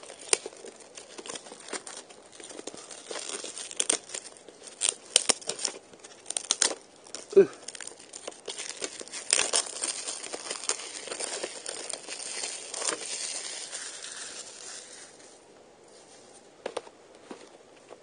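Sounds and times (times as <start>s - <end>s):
plastic wrap tearing and crinkling: 0.0s - 16.2s
faint rustles and clicks: 0.0s - 18.0s.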